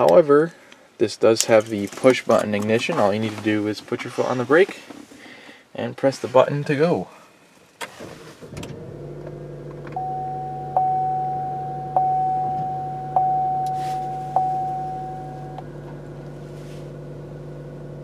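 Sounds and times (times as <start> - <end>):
car engine starting and idling: 7.8 - 18.0
dashboard warning chime: 10.0 - 15.9.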